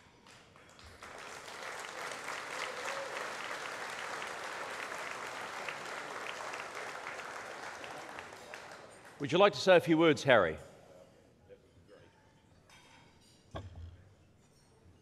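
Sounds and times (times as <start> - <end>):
audience applause: 0.7 - 9.8.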